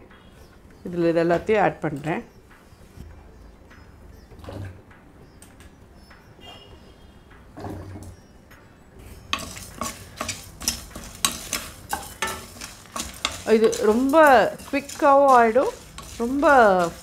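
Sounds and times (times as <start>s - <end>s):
spatula scraping dry grains in pan: 9.0s - 17.0s.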